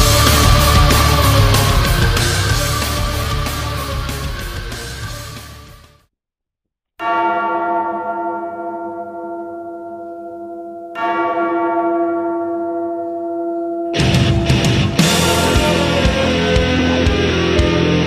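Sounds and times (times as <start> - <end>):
heavy rock music: 0.0 - 6.0, 14.0 - 18.0
large bell tolling: 7.0 - 17.4.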